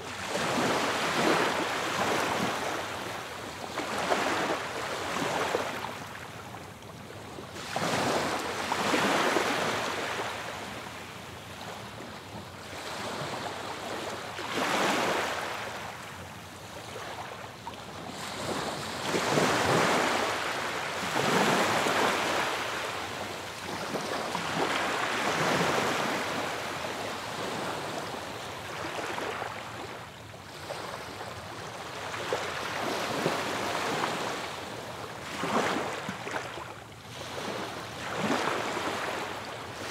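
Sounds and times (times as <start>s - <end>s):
ocean waves breaking: 35.2s - 39.9s.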